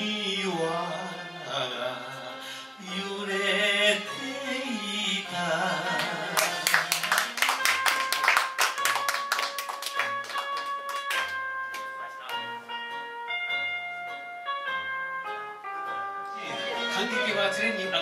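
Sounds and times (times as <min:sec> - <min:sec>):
man singing into a microphone: 0:00.0 - 0:06.6
karaoke backing track: 0:00.0 - 0:18.0
audience applauding: 0:06.0 - 0:11.9.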